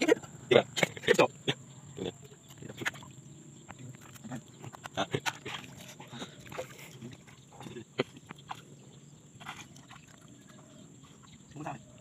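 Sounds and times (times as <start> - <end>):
water splashing and dripping: 2.5 - 11.8.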